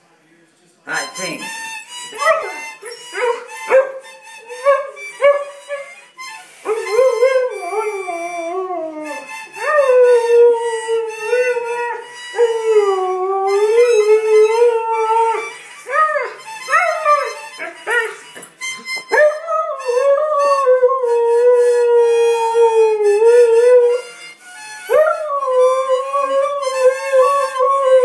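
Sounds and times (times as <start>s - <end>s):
husky howling: 24.9s - 28.0s.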